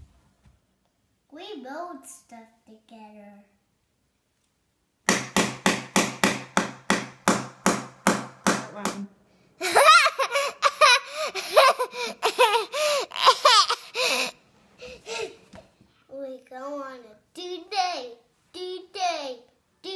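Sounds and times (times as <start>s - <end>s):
hammer striking a board: 5.1s - 9.0s
young boy laughing: 9.6s - 15.5s.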